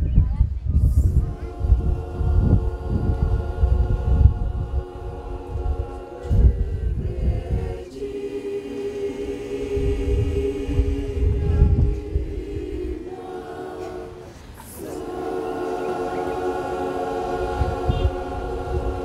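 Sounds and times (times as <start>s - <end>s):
low rumbles: 0.0s - 8.3s, 9.6s - 13.2s
choir singing a cappella: 0.8s - 19.0s.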